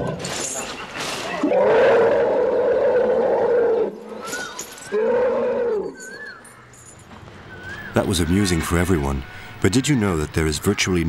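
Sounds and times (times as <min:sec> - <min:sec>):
elephant roaring: 0:01.4 - 0:04.2, 0:04.9 - 0:06.0.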